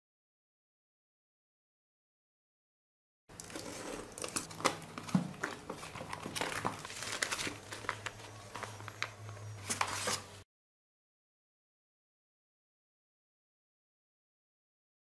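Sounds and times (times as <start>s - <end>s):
packaging rustling and crinkling: 3.3s - 10.4s.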